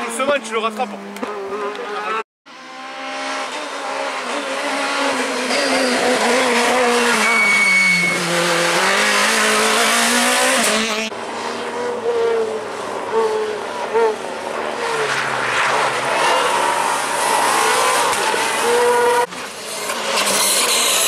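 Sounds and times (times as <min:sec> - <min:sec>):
quieter rally car engine: 0:00.0 - 0:21.0
rally car engine at high revs: 0:00.0 - 0:21.0
short high squeal: 0:05.5 - 0:08.5.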